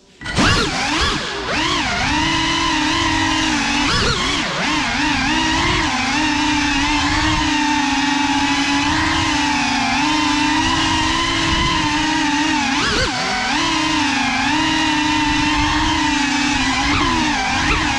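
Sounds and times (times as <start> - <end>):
drone motors and propellers whining: 0.0 - 17.9.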